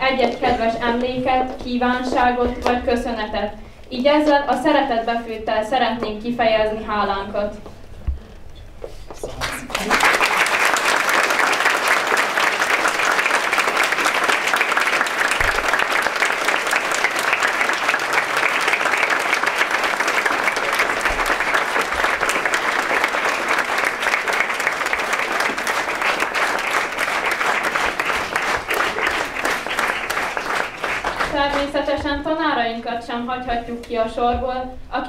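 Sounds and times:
audience applauding: 9.3 - 31.9.

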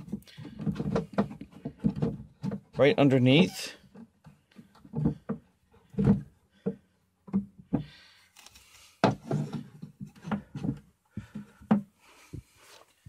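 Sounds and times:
wooden stakes knocking and clattering: 0.0 - 3.3, 3.9 - 12.6
wood scraping rub: 7.4 - 13.0.

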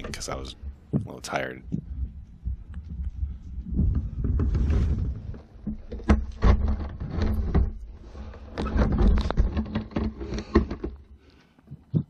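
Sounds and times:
low rumble: 0.0 - 5.6.

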